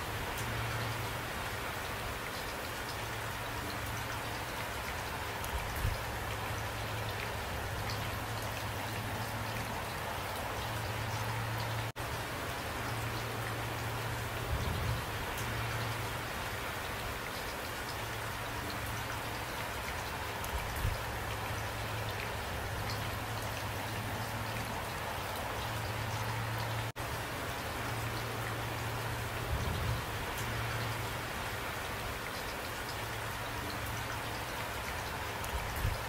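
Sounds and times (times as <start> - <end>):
raindrops ticking: 0.0 - 36.0
steady rain falling: 0.0 - 36.0.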